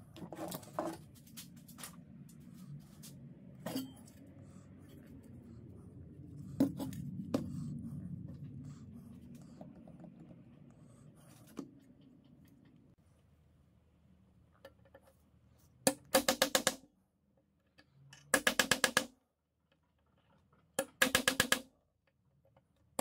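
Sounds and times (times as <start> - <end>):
low steady rumble: 1.0 - 14.5.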